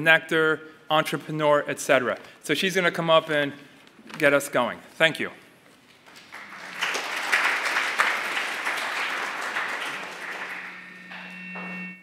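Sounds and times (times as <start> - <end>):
audience applauding: 6.1 - 11.8
steady hum: 9.1 - 12.0.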